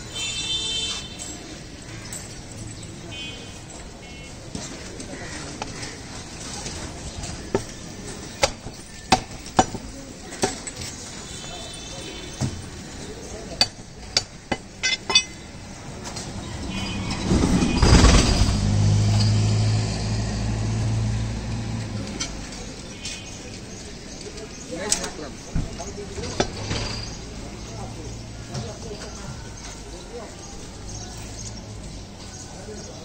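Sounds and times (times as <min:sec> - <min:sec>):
butchering knocks and clinks: 0:13.6 - 0:15.5.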